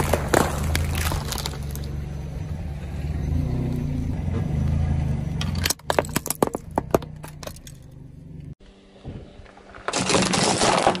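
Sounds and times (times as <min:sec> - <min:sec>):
plastic crunching under tyre: 0:00.0 - 0:02.0, 0:09.4 - 0:11.0.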